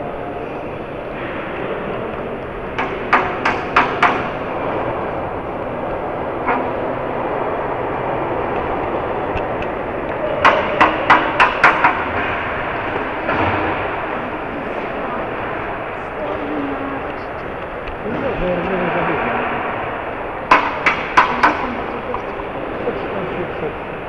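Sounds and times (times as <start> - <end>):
sharp clicks of wheels on track: 1.3 - 14.2, 20.4 - 22.3.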